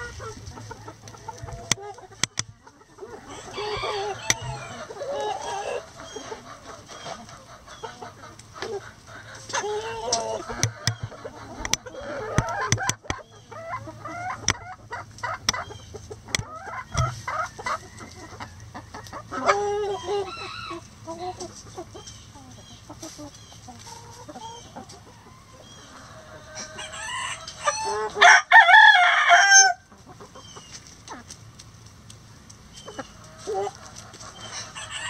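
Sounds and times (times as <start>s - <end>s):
hens clucking: 0.0s - 35.0s
rooster crowing: 3.0s - 5.8s, 26.6s - 29.8s.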